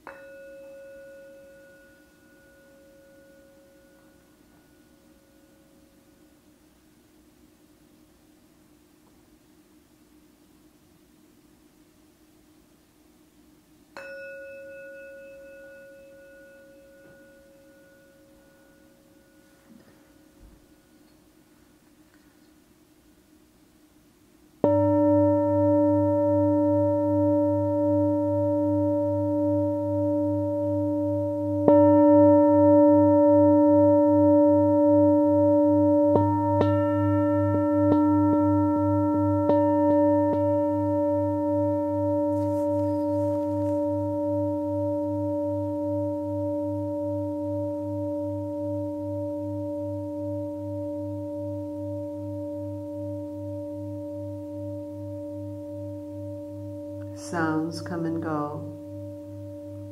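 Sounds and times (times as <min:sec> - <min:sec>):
singing bowl tapped: 0:00.0 - 0:02.3, 0:14.0 - 0:18.0, 0:36.1 - 0:47.6
singing bowl ringing: 0:00.0 - 0:06.6, 0:13.9 - 0:21.8, 0:24.6 - 0:59.9.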